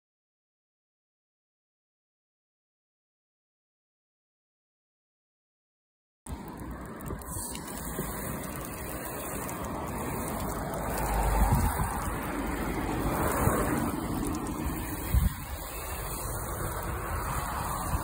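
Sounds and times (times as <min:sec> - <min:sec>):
hose spraying water on car: 0:06.3 - 0:18.0.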